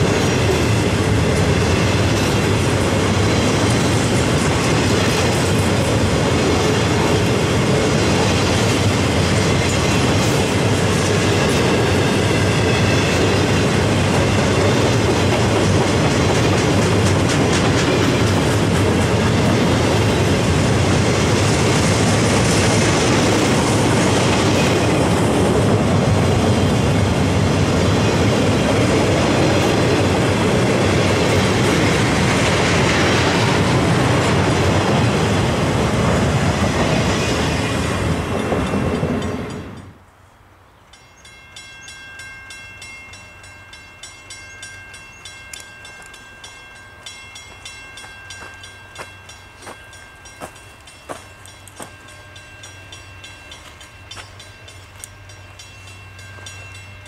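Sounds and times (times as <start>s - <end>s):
wheels clicking over rail joints: 0.0s - 40.0s
train wheels rumbling on track: 0.0s - 40.1s, 40.9s - 57.0s.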